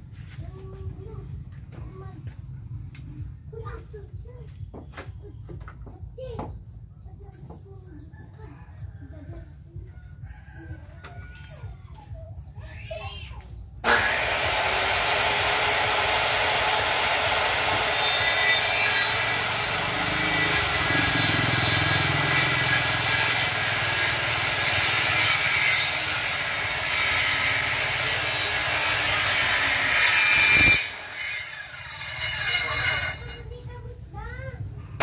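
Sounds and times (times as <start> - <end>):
circular saw cutting wood: 13.8 - 33.5.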